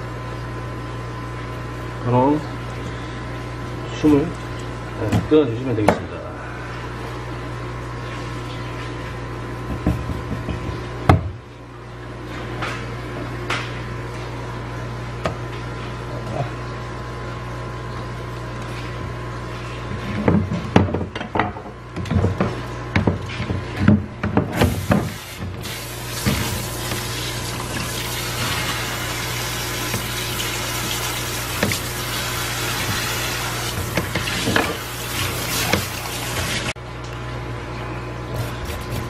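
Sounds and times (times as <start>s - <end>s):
steady background hum: 0.0s - 39.0s
knocks on cutting board: 9.7s - 11.4s.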